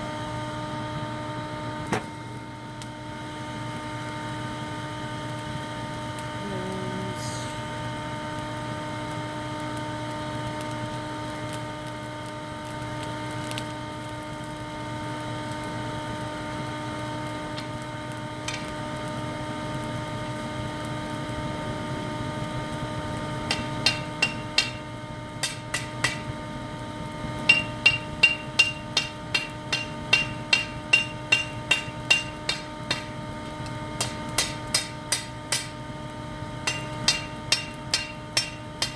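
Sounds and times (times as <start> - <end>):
shop vac drone: 0.0 - 38.9
hammer ringing on anvil: 23.5 - 26.3, 27.5 - 33.1, 34.0 - 35.8, 36.6 - 38.9.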